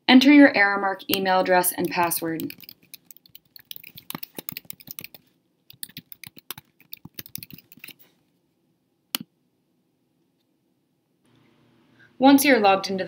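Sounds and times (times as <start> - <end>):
typing on computer keyboard: 1.1 - 8.0.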